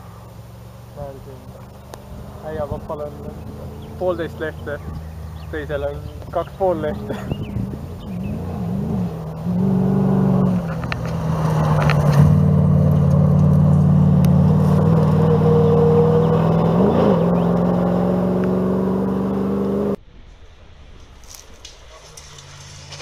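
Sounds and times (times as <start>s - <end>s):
truck engine pulling hard: 0.0s - 21.1s.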